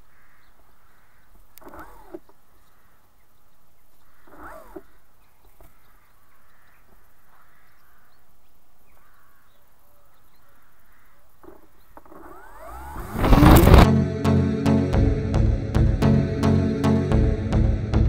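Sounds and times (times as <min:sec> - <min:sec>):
crows cawing: 0:00.0 - 0:01.4, 0:02.7 - 0:03.1, 0:04.0 - 0:08.3, 0:09.0 - 0:09.6, 0:10.4 - 0:11.7
loud rushing sound: 0:12.7 - 0:13.9.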